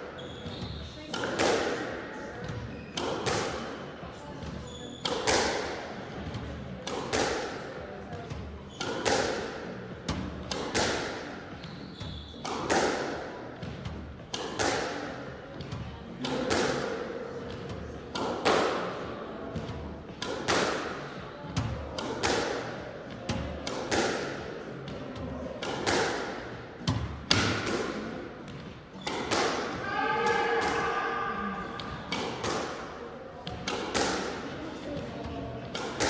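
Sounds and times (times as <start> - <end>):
racket striking squash ball: 1.1 - 3.8, 4.4 - 5.8, 6.8 - 7.6, 8.8 - 11.4, 12.4 - 15.1, 16.2 - 17.0, 17.6 - 19.0, 19.6 - 24.5, 25.6 - 36.0.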